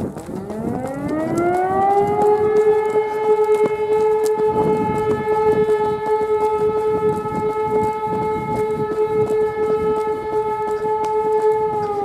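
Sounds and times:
siren steady tone: 0.0s - 12.0s.

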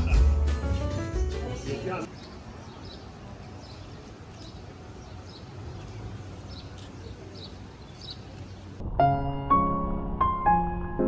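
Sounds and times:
piano music: 0.0s - 2.1s, 8.8s - 11.0s
outdoor background noise: 0.0s - 10.6s
small bird chirping: 2.0s - 8.7s.

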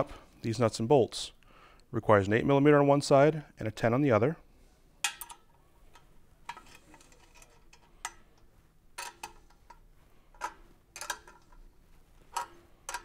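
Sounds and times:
wrenches clinking on bolts: 9.0s - 9.8s, 10.4s - 13.0s.

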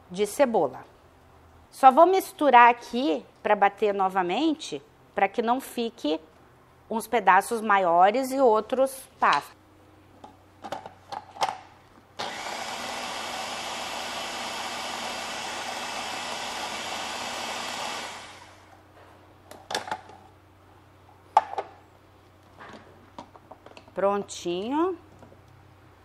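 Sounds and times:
food processor running: 12.2s - 18.7s.

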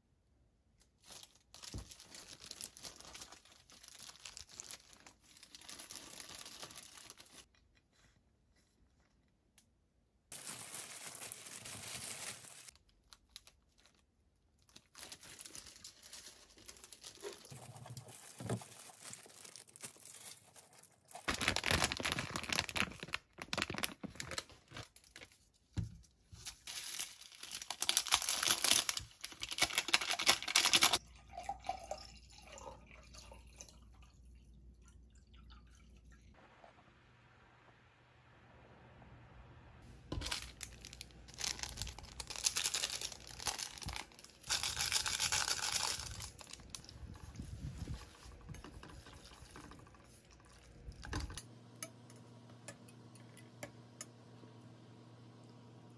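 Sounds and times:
plastic gloves crinkling: 0.8s - 7.5s, 10.3s - 31.0s, 39.8s - 51.1s.

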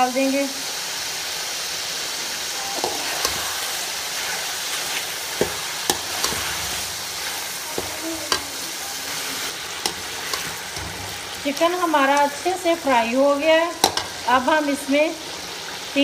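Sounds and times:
chicken sizzling in oil: 0.0s - 16.0s
metal spatula scraping a pan: 2.7s - 12.3s.

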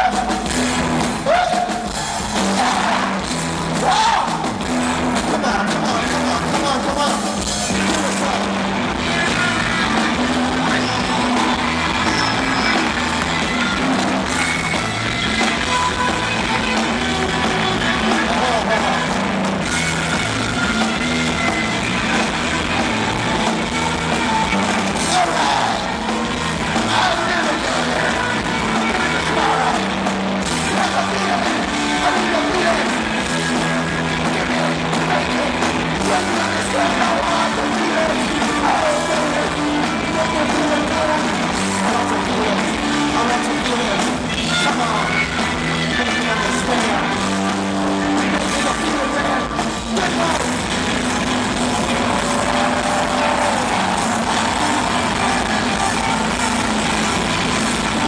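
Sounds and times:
live rock band playing: 0.0s - 58.0s
repeating bass line: 0.0s - 58.0s
singer's voice: 0.0s - 58.0s.

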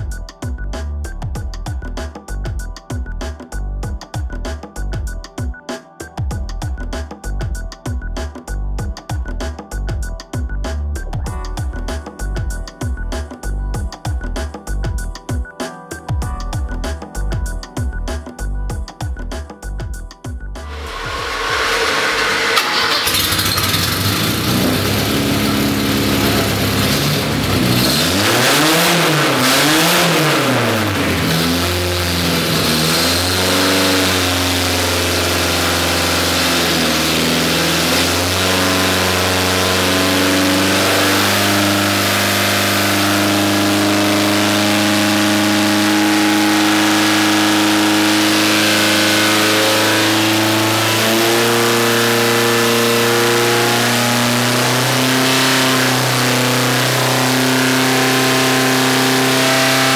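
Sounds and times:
car engine revving: 20.6s - 59.9s.

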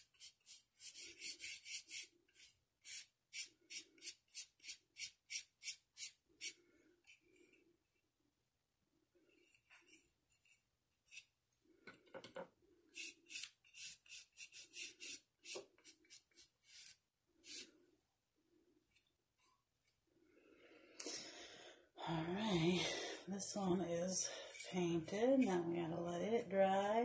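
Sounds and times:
paintbrush brushing rubs: 13.0s - 17.7s, 23.4s - 27.0s.

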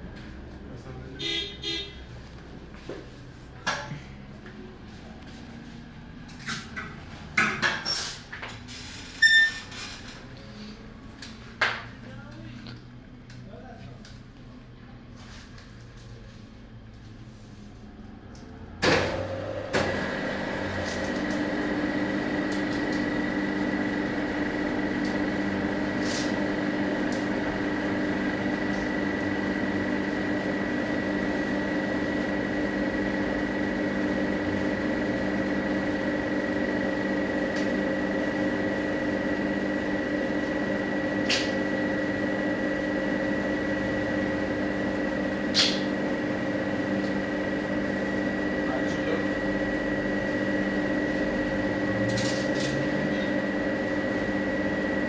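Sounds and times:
machine humming: 18.3s - 55.0s.

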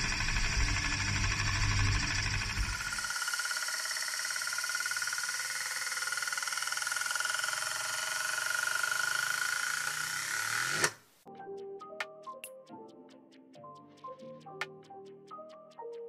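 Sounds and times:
spinning metal disk whirring: 0.0s - 11.0s.

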